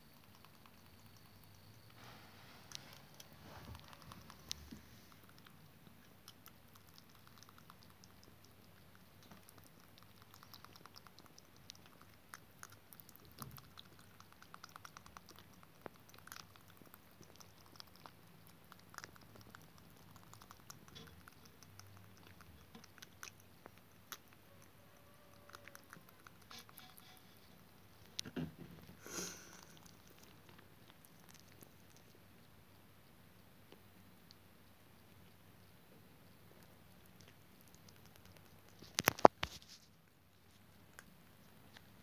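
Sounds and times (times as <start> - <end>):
rabbit licking and chewing: 0.0 - 42.0.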